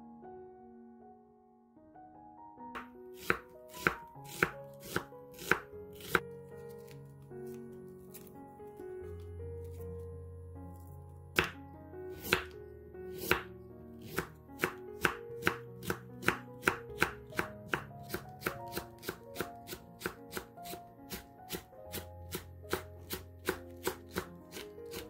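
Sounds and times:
soft background music: 0.0 - 25.0
knife chopping on wooden board: 2.8 - 6.2, 11.4 - 12.6, 13.2 - 25.0.

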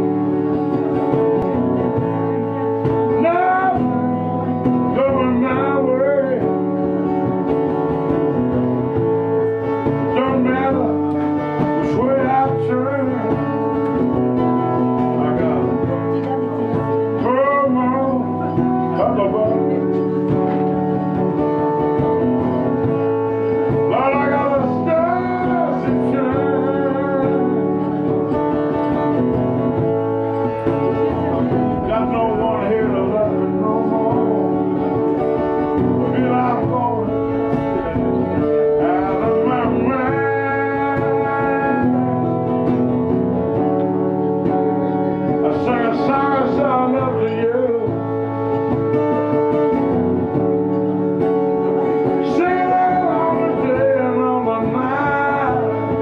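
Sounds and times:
live guitar playing: 0.0 - 56.0
wavering lead melody: 14.1 - 56.0.

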